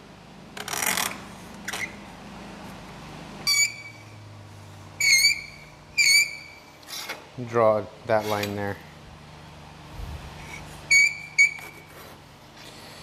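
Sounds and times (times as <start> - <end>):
marker squeaking on metal: 3.4 - 4.2, 5.0 - 7.2, 10.4 - 12.8
marker scrape: 10.4 - 12.9.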